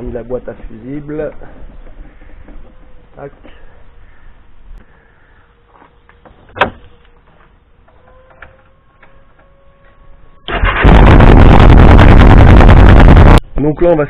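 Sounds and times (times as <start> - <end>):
motorcycle engine starting and running: 10.5 - 13.4.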